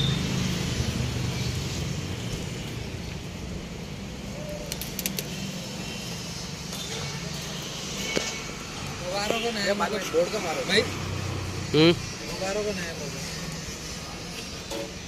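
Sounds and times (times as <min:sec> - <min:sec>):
light sharp clicks: 0:04.6 - 0:05.4.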